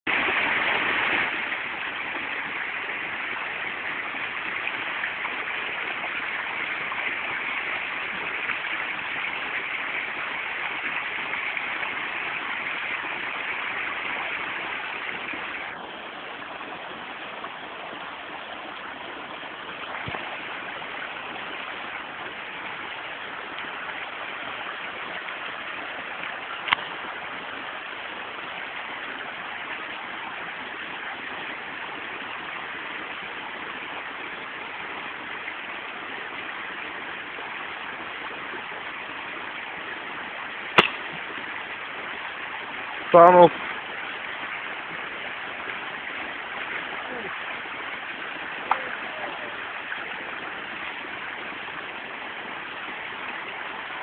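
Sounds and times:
airsoft pistol firing: 40.8s - 41.0s.

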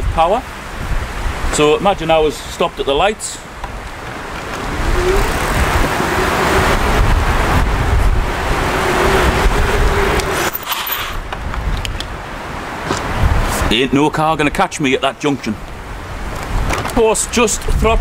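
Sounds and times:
steady rushing noise: 0.0s - 14.1s
electric bike motor whining: 4.4s - 10.6s.

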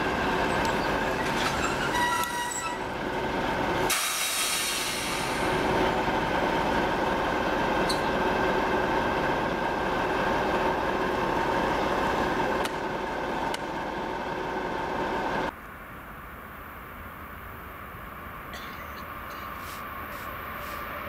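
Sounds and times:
diesel locomotive engine drone: 0.0s - 21.0s
outdoor hiss: 3.9s - 5.6s.

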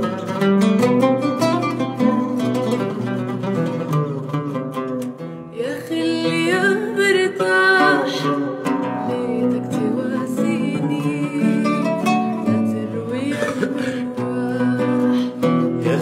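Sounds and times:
oud melody: 0.0s - 16.0s
woman singing: 5.5s - 16.0s.

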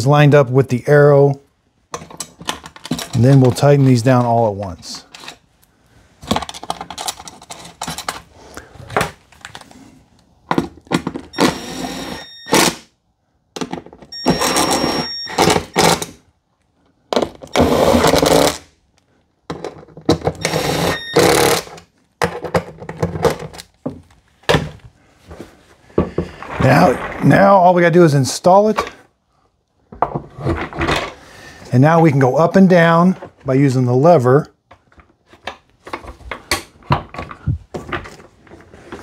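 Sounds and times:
impact driver running: 11.4s - 12.8s, 20.4s - 21.7s.

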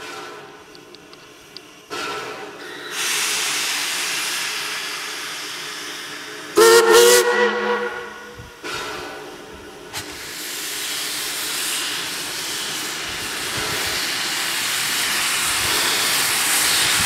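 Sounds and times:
steam hissing: 1.4s - 17.0s
steam whistle blast: 6.6s - 8.4s.

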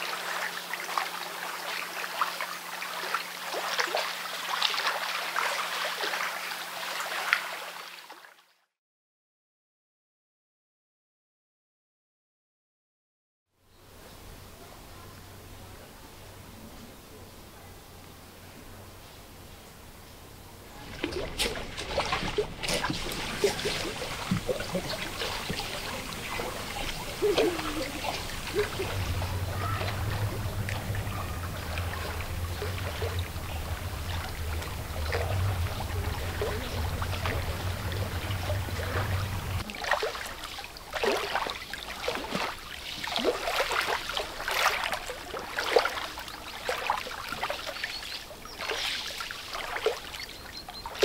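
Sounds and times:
low hum: 13.9s - 39.7s
waves lapping on pebbles: 20.8s - 51.0s.

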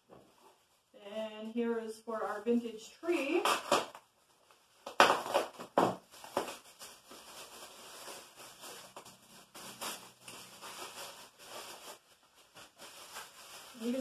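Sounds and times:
plastic packaging crinkling: 3.2s - 14.0s.

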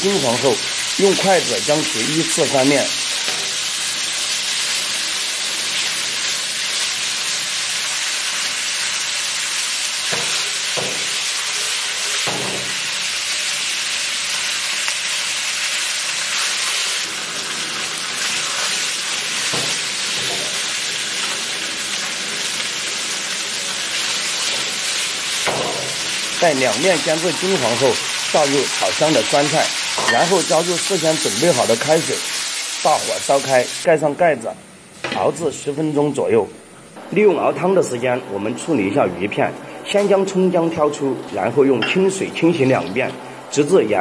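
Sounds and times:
fish sizzling in hot oil: 0.0s - 33.9s.

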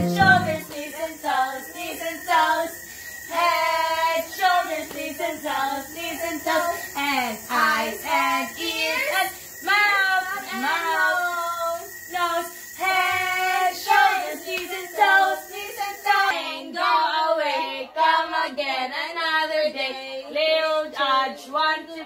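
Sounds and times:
girl and women singing: 0.0s - 22.0s.

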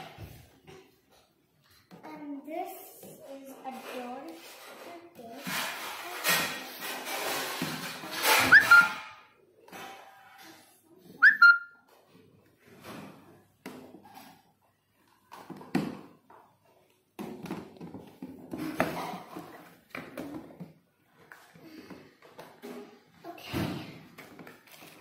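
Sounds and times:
whistle-like chirps dropping in pitch: 8.5s - 9.0s, 11.2s - 11.7s.

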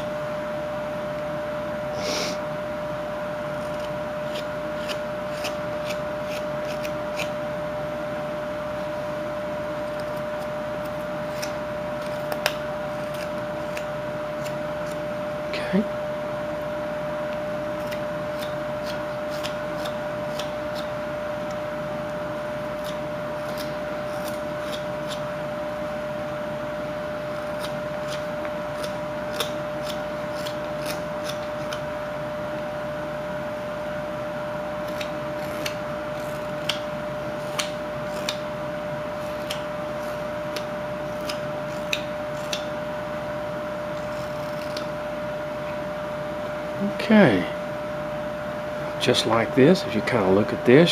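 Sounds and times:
steady hum: 0.0s - 50.9s
knife cutting wood chips: 3.5s - 7.4s, 10.0s - 15.1s, 17.7s - 21.6s, 22.5s - 25.3s, 27.2s - 31.9s, 34.7s - 42.8s, 43.9s - 45.0s.

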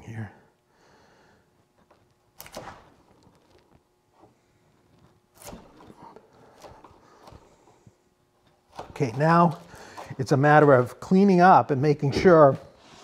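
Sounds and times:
chisel cutting wood: 8.6s - 11.1s.

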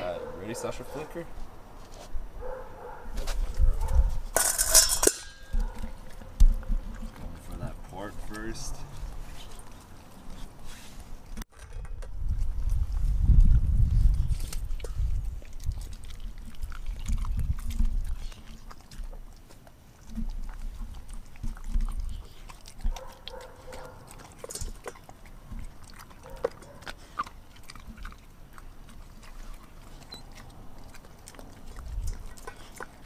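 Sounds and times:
dog crunching food: 12.0s - 33.0s.

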